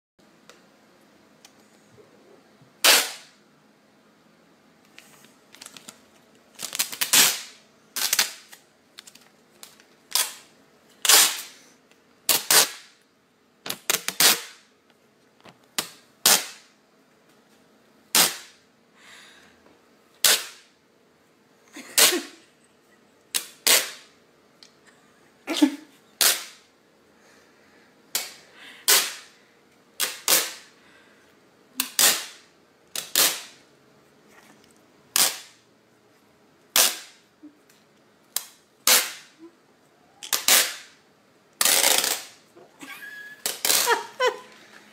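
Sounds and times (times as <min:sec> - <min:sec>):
tape ripping off roll: 0:02.8 - 0:03.4, 0:05.5 - 0:11.6, 0:12.2 - 0:13.0, 0:13.7 - 0:14.7, 0:15.8 - 0:16.7, 0:18.1 - 0:18.6, 0:20.2 - 0:20.7, 0:23.4 - 0:24.1, 0:26.2 - 0:26.7, 0:28.2 - 0:29.3, 0:30.0 - 0:30.7, 0:31.8 - 0:33.6, 0:35.1 - 0:35.6, 0:36.7 - 0:37.2, 0:38.4 - 0:39.4, 0:40.2 - 0:41.0, 0:41.6 - 0:42.4, 0:43.3 - 0:44.4.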